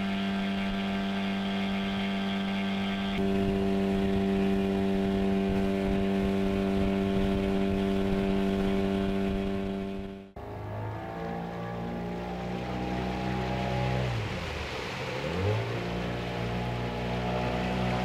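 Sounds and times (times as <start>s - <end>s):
outboard motor running: 0.0s - 18.0s.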